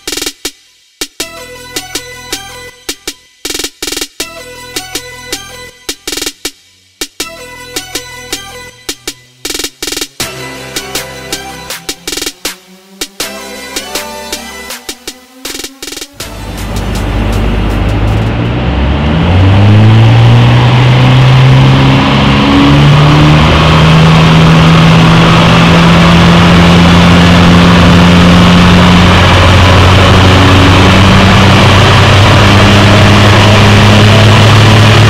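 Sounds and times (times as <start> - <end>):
car engine revving: 16.1 - 35.0.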